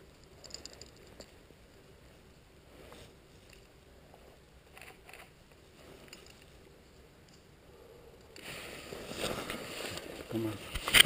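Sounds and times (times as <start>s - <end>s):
broad rustling hiss: 5.4s - 10.7s
faint clicks or crunches: 10.7s - 11.0s.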